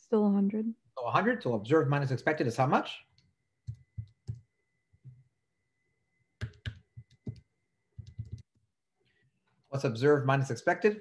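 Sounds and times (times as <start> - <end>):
faint steady high tone: 3.3 - 8.4.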